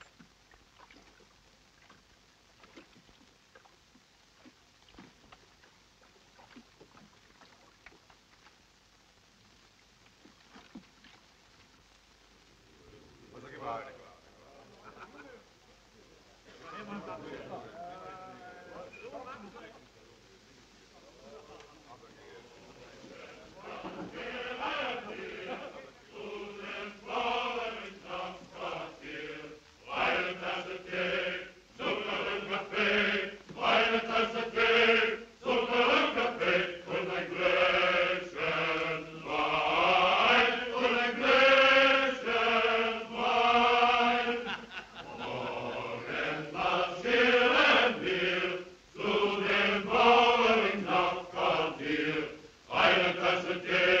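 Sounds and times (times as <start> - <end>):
voices singing slow chant: 22.6 - 54.0.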